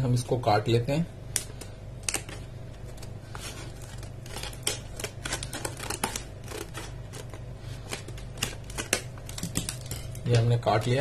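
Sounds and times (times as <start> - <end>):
scissors cutting plastic: 1.3 - 10.0
plastic crackling: 1.3 - 11.0.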